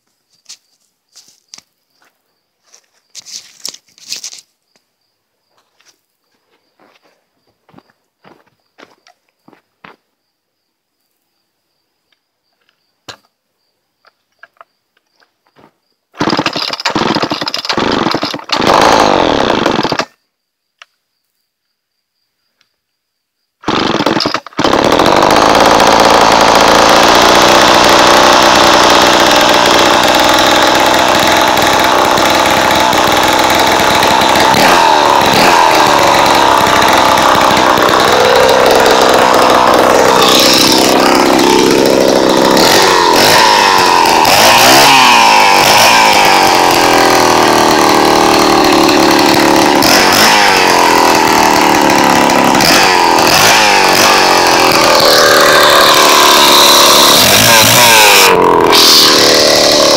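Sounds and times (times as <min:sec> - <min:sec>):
chainsaw engine running: 0:16.2 - 0:20.1, 0:23.6 - 0:59.9.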